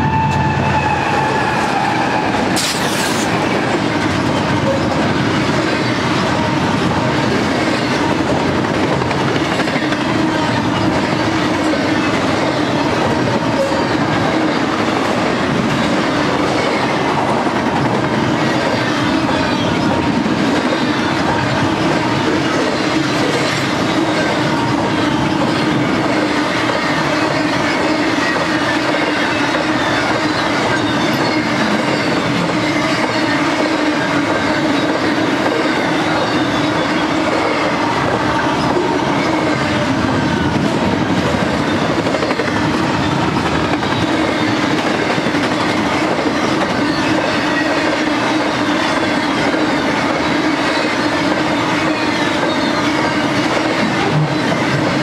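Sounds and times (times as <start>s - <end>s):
steel wheels rolling on rail: 0.0s - 55.0s
high wheel squeals: 18.4s - 55.0s.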